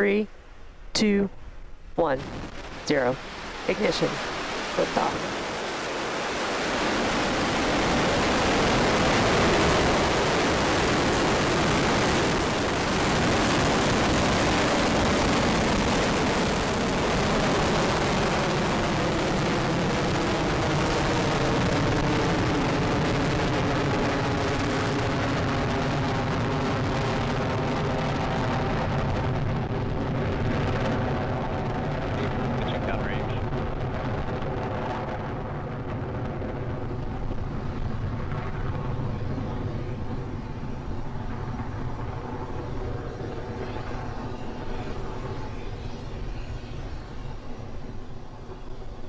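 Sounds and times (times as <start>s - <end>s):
steady tones: 0.0s - 11.4s
rocket engines roaring: 0.9s - 49.0s.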